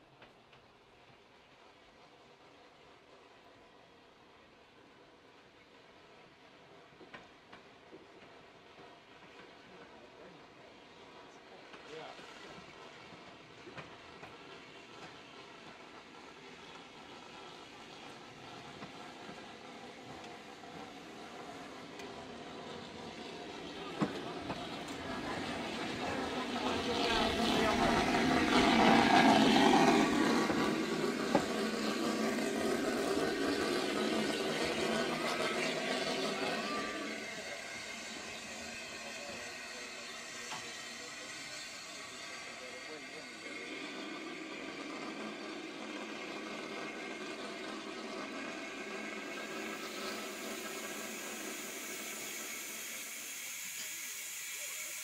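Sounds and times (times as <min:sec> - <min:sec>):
steam locomotive rumbling past: 0:00.0 - 0:55.0
faint voices: 0:21.1 - 0:55.0.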